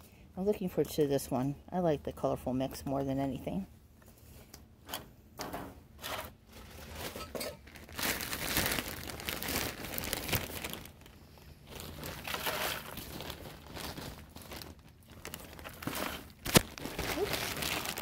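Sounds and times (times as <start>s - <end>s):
plastic bag crinkling: 6.3s - 18.0s.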